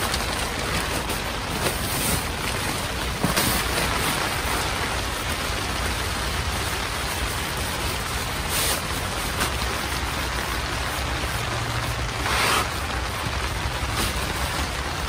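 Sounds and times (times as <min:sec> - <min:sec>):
nylon rustling: 0:00.0 - 0:15.0
air hissing out of sleeping pad: 0:12.2 - 0:13.0.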